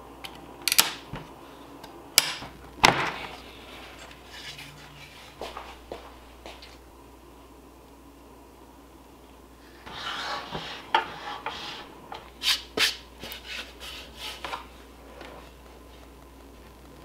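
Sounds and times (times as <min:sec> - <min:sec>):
short scrapes: 0:09.8 - 0:14.6.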